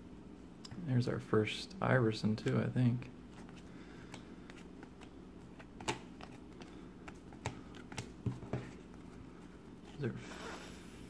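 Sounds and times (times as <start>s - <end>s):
cards being thumbed through: 4.2s - 8.8s
cards snapping clicks: 5.7s - 6.7s.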